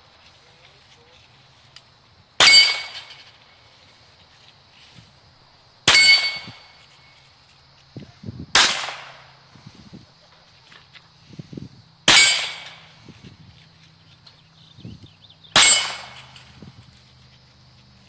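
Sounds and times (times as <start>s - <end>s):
struck steel plate ringing: 2.4s - 3.3s, 5.9s - 7.0s, 12.1s - 12.9s, 15.6s - 16.5s
handgun shots: 8.6s - 9.2s, 12.1s - 12.8s, 15.6s - 16.4s.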